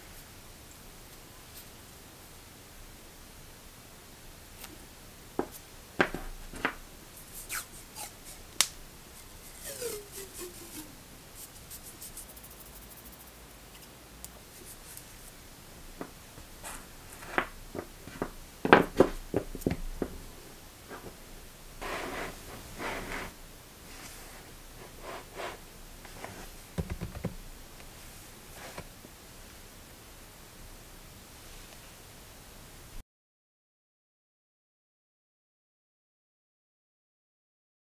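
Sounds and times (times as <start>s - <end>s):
tape peeling from a roll: 7.4s - 12.3s
paper rustling: 9.1s - 12.3s.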